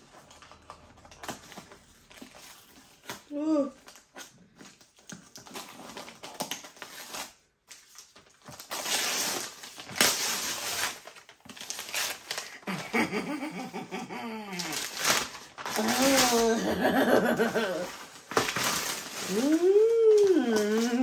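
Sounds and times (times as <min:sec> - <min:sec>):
box wrapping torn open: 0:00.1 - 0:13.2, 0:14.5 - 0:21.0
woman making wordless sounds: 0:19.3 - 0:21.0.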